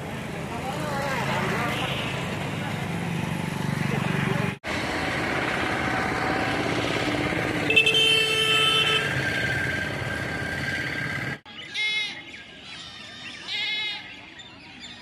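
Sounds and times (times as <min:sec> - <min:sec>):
roadside traffic noise: 0:00.0 - 0:15.0
vehicle horn: 0:07.6 - 0:09.4.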